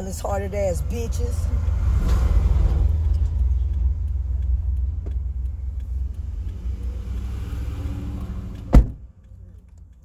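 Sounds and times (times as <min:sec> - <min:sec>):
car cabin rumble: 0:08.3 - 0:09.6.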